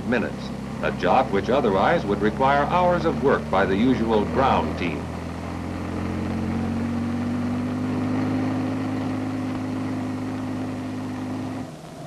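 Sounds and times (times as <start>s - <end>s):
helicopter engine and rotor drone: 0.0s - 5.1s.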